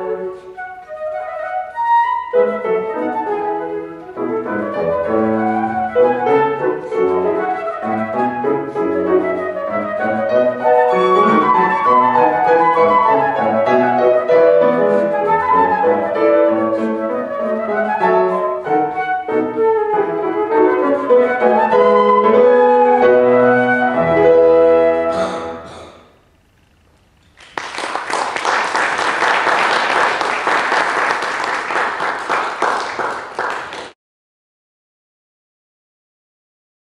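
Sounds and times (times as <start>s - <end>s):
flute and piano classical piece: 0.0s - 25.8s
audience applauding: 27.3s - 34.0s.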